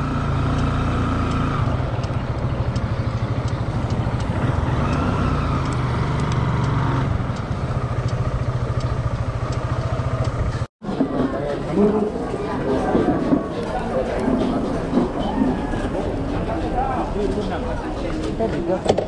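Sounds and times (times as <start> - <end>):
small motorcycle engine running: 0.0 - 10.7.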